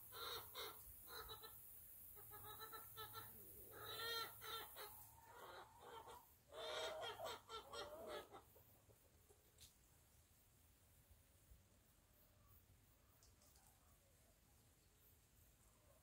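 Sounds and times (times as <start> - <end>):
chicken clucking: 0.0 - 9.7.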